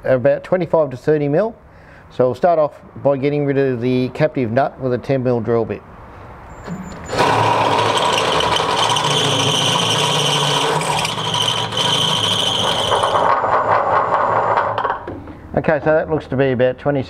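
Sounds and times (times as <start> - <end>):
cordless drill boring metal: 7.0 - 15.0.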